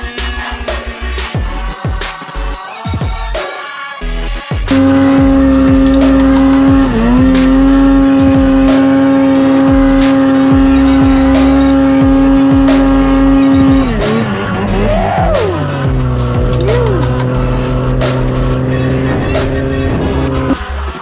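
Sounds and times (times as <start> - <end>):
music with steady beat: 0.0 - 21.0
snowmobile engine at high revs: 4.7 - 21.0.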